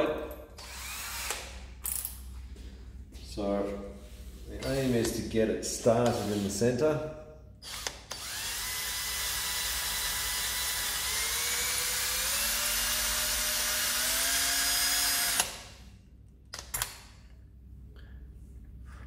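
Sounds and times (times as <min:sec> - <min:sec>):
cordless drill whine: 0:00.6 - 0:01.5, 0:07.6 - 0:15.7.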